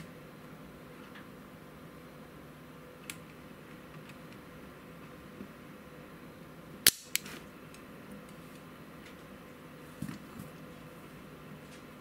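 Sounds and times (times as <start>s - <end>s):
desoldering pump snapping: 6.8s - 7.8s.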